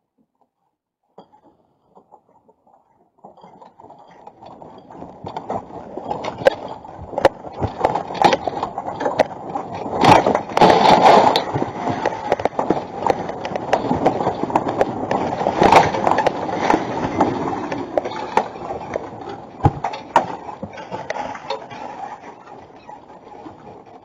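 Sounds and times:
shelves and stock rattling: 0:03.2 - 0:24.0
earthquake rumble: 0:04.2 - 0:22.4.

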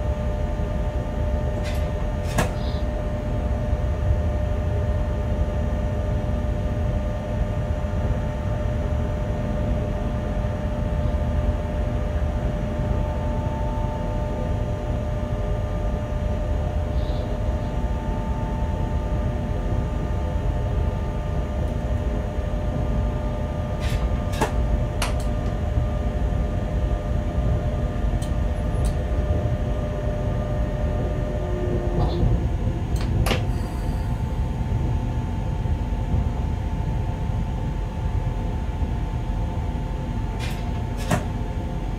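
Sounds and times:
electrical whine: 0:00.0 - 0:41.9.

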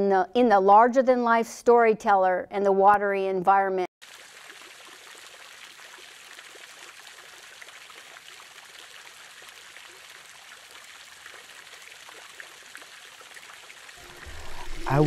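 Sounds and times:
water flowing and trickling: 0:04.0 - 0:15.0.

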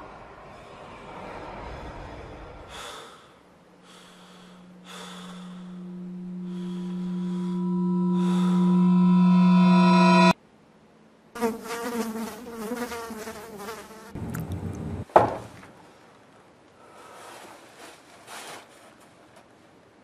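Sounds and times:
low rumble: 0:00.0 - 0:10.4
wavering insect-like buzz: 0:03.8 - 0:10.4.

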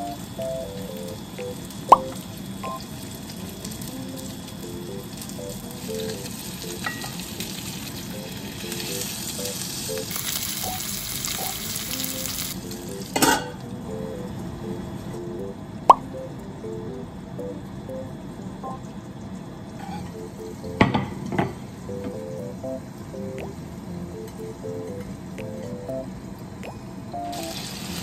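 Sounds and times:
meat sizzling in a frying pan: 0:00.0 - 0:13.4, 0:27.3 - 0:28.0.

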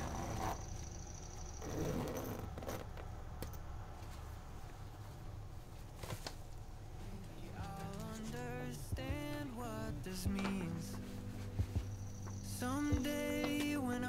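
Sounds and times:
zipper closing: 0:00.0 - 0:00.7, 0:01.6 - 0:03.0.

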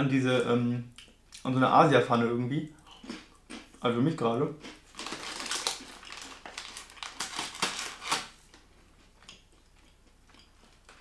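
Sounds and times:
plastic snack bag crinkling: 0:04.6 - 0:08.6.

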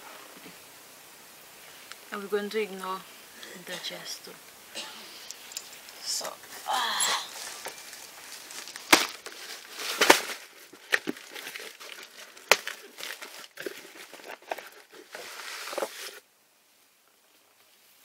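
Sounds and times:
cardboard rustling and crinkling: 0:05.5 - 0:16.2.

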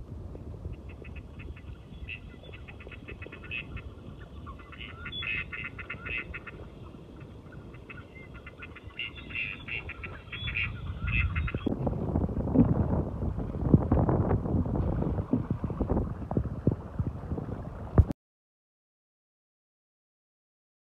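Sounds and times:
low steady rumble: 0:00.0 - 0:18.1
ducks quacking: 0:00.9 - 0:11.7.

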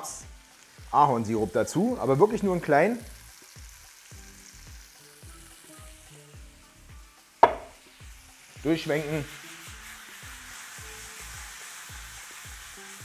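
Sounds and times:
food sizzling in a frying pan: 0:00.0 - 0:13.0
sharp knock: 0:07.4 - 0:07.8.

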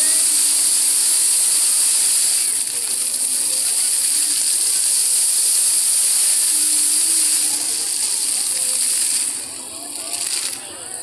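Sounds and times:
fountain water jets splashing: 0:00.0 - 0:11.0.

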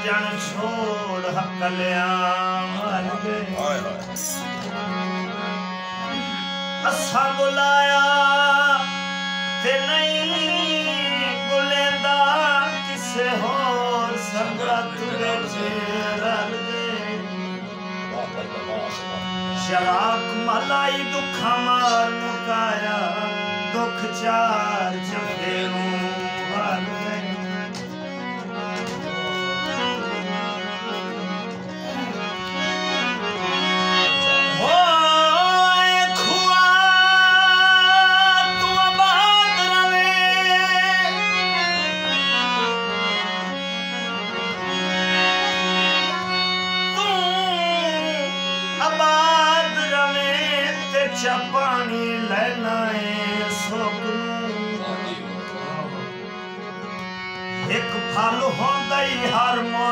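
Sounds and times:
folk music with drone and melody: 0:00.0 - 0:59.9.

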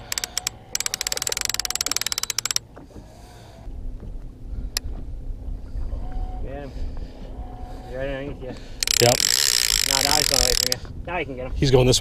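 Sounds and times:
fishing reel clicker ratcheting: 0:00.0 - 0:02.6, 0:08.8 - 0:10.8.

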